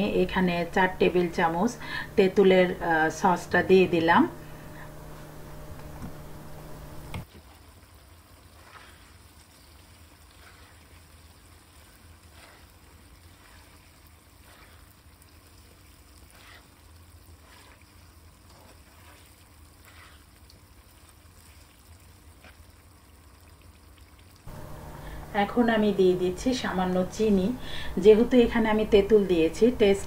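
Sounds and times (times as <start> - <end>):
low steady hum: 0.0 - 7.2, 24.5 - 30.0
spatula stirring in wok: 0.0 - 22.9.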